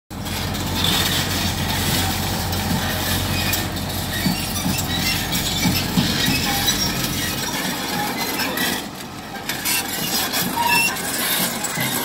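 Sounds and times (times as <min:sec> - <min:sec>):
diesel engine running: 0:00.1 - 0:12.0
excavator tracks clanking: 0:00.1 - 0:12.0.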